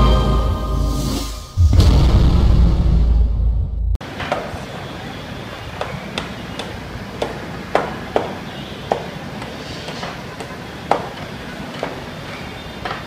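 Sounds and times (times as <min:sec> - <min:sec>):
hammer knocking: 0:05.8 - 0:12.0.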